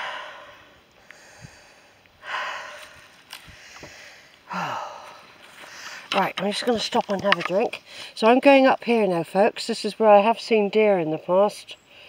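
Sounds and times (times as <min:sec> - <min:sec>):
person breathing hard: 0:00.0 - 0:06.1, 0:07.8 - 0:08.2.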